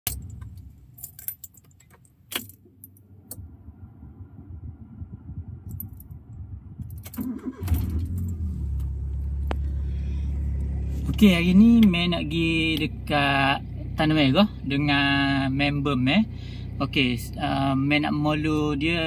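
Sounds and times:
car keys jangling: 0.0s - 3.1s, 5.7s - 6.2s, 6.8s - 9.6s
car engine idling: 0.1s - 19.0s.

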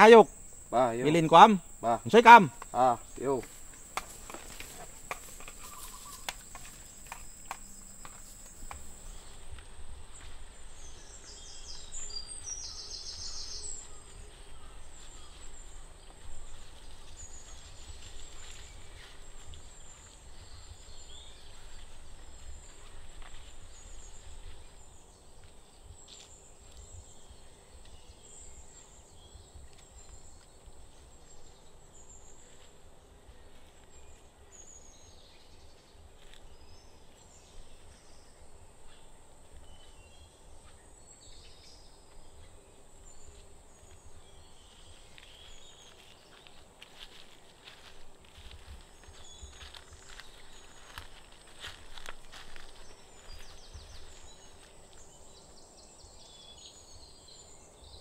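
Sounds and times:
bird chirps and calls: 0.0s - 9.4s.

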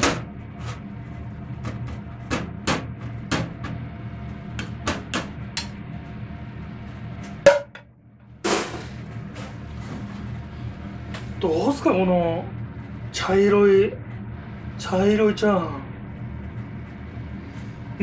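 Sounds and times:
low steady hum: 0.0s - 18.0s
ladle knocking on frying pan: 7.5s - 7.8s.

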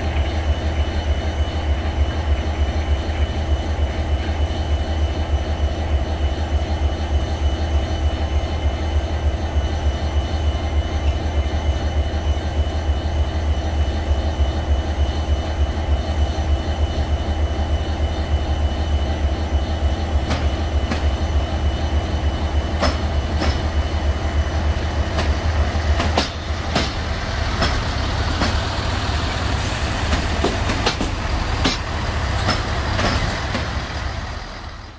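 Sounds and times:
locomotive engine rumbling: 12.2s - 34.9s.

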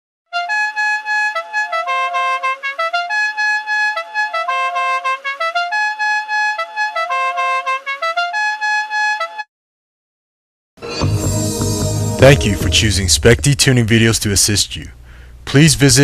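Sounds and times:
musical air horn playing a tune: 0.3s - 9.5s.

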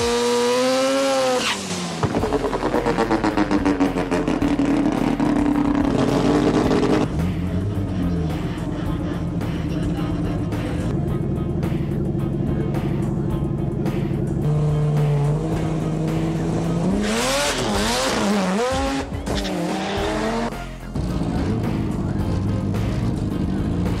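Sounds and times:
car tyres squealing: 0.0s - 7.1s, 16.7s - 20.5s
background music: 0.0s - 24.0s
car sound: 0.0s - 24.0s.

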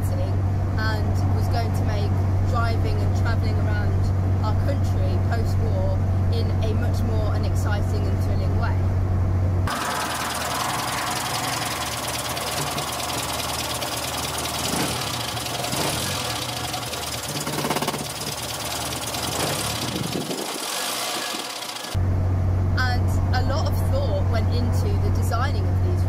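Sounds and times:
car engine idling: 9.7s - 22.0s.

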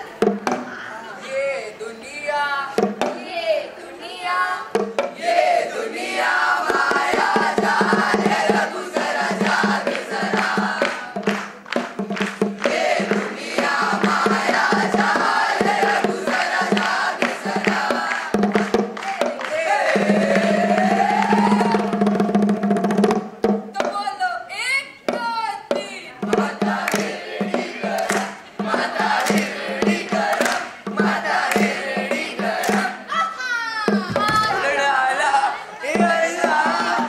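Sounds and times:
children singing and chanting: 0.0s - 11.4s, 12.6s - 18.4s, 19.0s - 22.1s, 23.8s - 37.0s
music with a fast beat: 6.6s - 23.9s, 25.1s - 33.1s, 35.8s - 37.0s.

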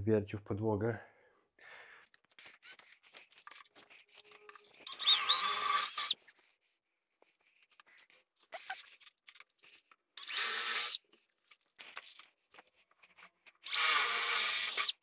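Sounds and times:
power drill boring into board: 4.9s - 6.2s, 10.2s - 11.0s, 13.6s - 15.0s.

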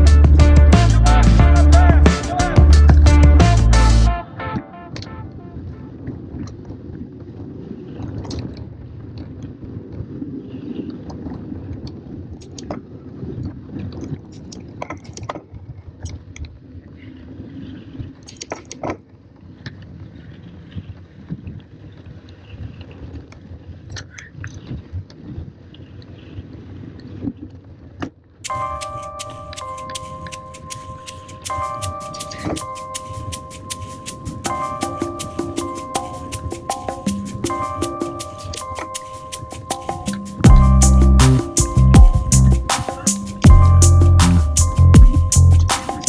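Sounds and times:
wind on microphone: 4.9s - 18.3s, 19.4s - 28.8s.

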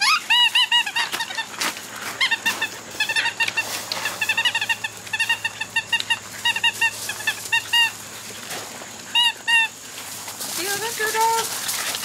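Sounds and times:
squeaky toy squeaking: 2.2s - 7.9s.

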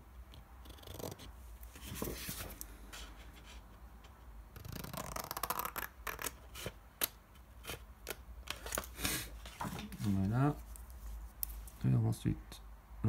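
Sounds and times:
paper rustling: 1.7s - 3.6s, 8.5s - 11.7s.

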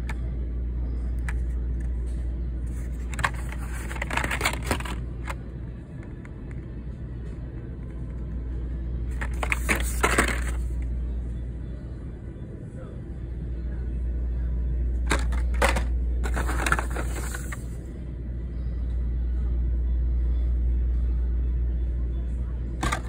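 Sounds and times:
steady low hum: 0.0s - 23.0s
plastic and cardboard crinkling: 2.8s - 5.0s, 9.2s - 10.6s.

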